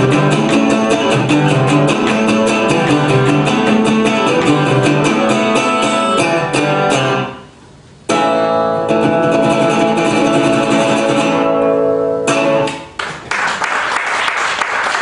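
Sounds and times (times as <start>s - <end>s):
strummed guitar chord: 0.0s - 7.5s
applause: 13.0s - 15.0s.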